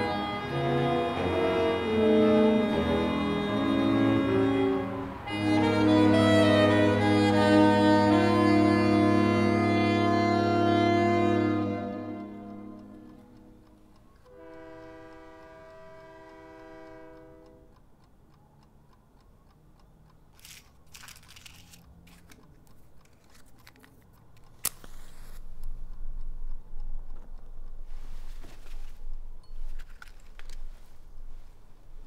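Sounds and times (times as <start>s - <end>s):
horn-like chord: 0.0s - 17.7s
clicks and rustles: 20.3s - 25.8s, 28.0s - 31.3s.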